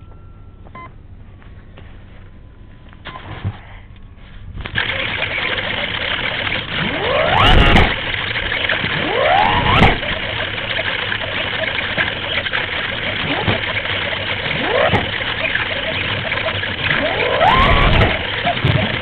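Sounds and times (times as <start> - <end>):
electric motor and propeller whine: 4.8 - 19.0.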